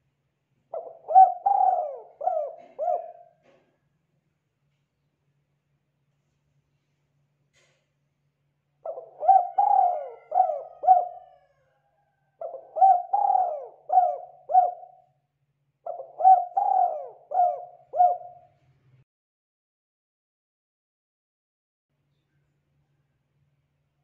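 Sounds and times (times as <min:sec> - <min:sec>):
dove cooing: 0:00.7 - 0:03.6, 0:08.8 - 0:11.6, 0:12.4 - 0:15.0, 0:15.9 - 0:18.5.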